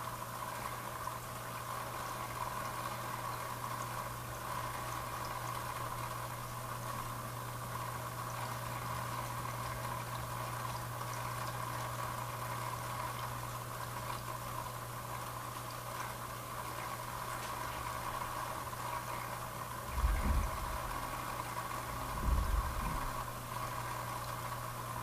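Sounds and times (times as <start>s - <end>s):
aquarium filter hum: 0.0s - 25.0s
water bubbling: 19.7s - 24.0s.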